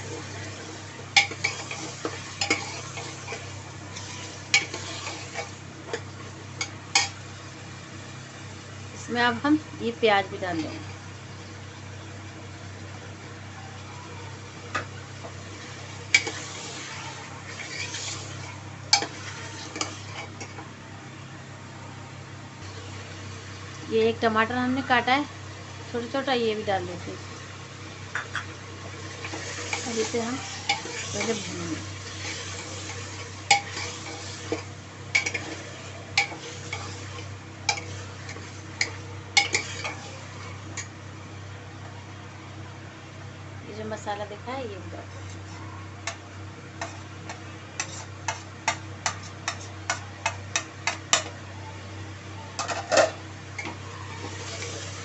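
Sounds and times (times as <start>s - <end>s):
meat sizzling in oil: 0.0s - 10.1s, 14.3s - 20.7s, 22.5s - 41.5s, 53.1s - 55.0s
food frying hiss: 0.0s - 55.0s.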